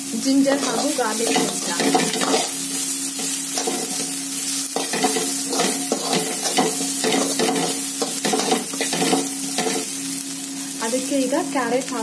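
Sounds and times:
food sizzling in hot oil: 0:00.0 - 0:12.0
spatula scraping and stirring: 0:00.6 - 0:10.0.

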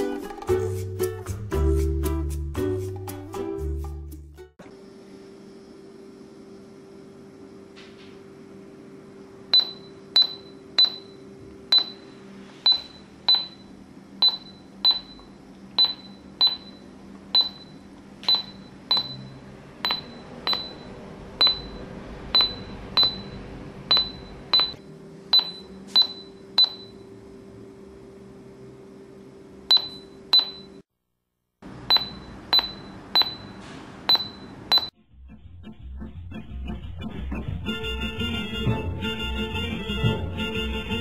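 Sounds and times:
heart rate monitor beeps: 0:09.5 - 0:27.0, 0:29.7 - 0:30.8, 0:31.9 - 0:34.9.

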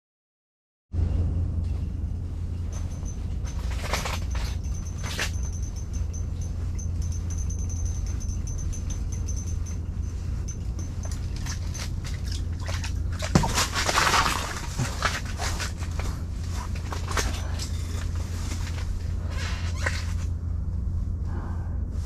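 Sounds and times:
low steady hum: 0:01.0 - 0:22.0
fish splashing in water: 0:11.4 - 0:15.1.

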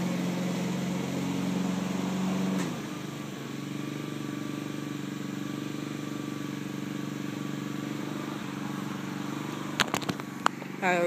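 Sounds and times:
lawn mower engine running: 0:00.0 - 0:11.0.

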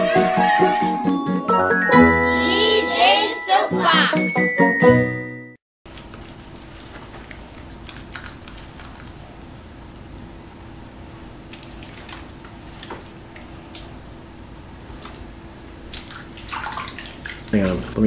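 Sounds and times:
small wet lather clicks: 0:05.9 - 0:09.2, 0:11.5 - 0:13.9, 0:15.9 - 0:17.8
hands lathering soap: 0:05.9 - 0:09.3, 0:11.5 - 0:13.9, 0:15.8 - 0:18.0.

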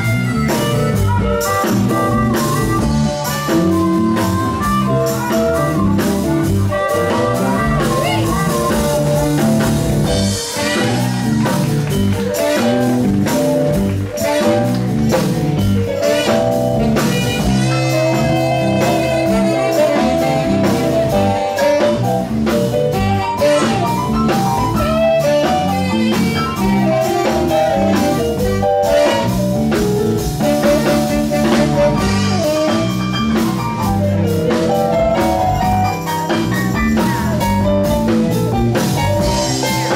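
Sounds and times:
saxophones: 0:00.0 - 0:11.3, 0:15.8 - 0:33.8
harmonica through a microphone: 0:00.0 - 0:11.4, 0:16.0 - 0:29.4, 0:30.5 - 0:34.2
live blues band playing: 0:00.0 - 0:39.9.

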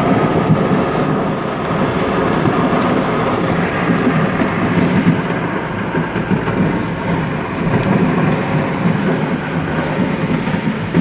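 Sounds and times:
car road and engine rumble: 0:00.0 - 0:11.0.

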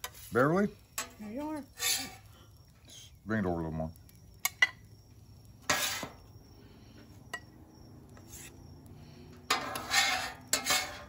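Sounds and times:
metal scraper scraping griddle: 0:01.8 - 0:02.2, 0:05.6 - 0:06.2, 0:09.5 - 0:11.0.

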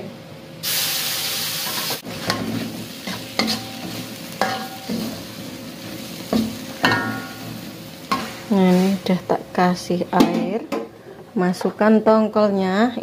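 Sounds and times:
oil sizzling in a wok: 0:00.6 - 0:10.0
metal spatula scraping a wok: 0:01.7 - 0:09.1.

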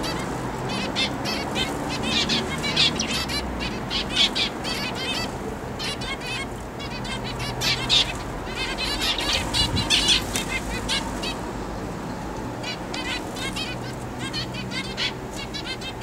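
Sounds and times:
finches chirping: 0:00.0 - 0:11.4, 0:12.6 - 0:16.0.

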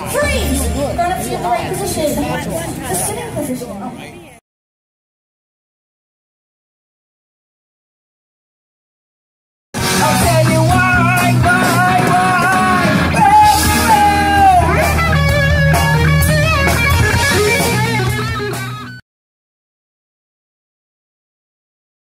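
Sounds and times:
rock band playing: 0:00.0 - 0:02.0, 0:09.8 - 0:19.0.

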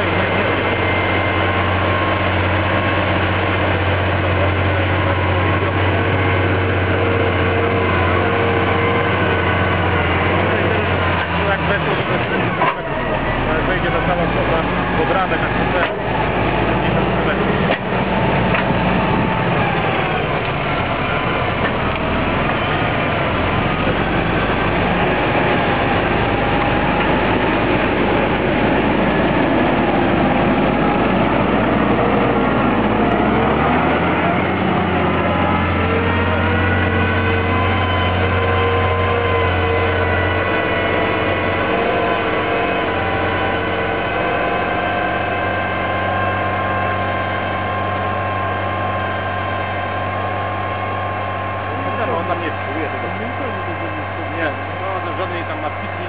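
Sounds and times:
tractor diesel engine running: 0:00.0 - 0:56.0
steady drone with held tones: 0:18.1 - 0:56.0.

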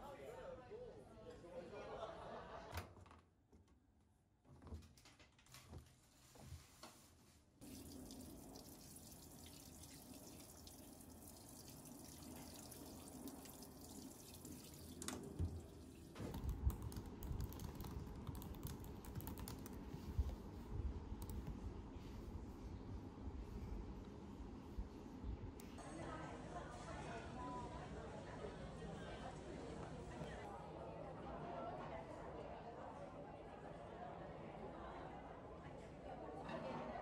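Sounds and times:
water filling washing machine drum: 0:07.6 - 0:16.4
typing on laptop keyboard: 0:16.2 - 0:19.9.

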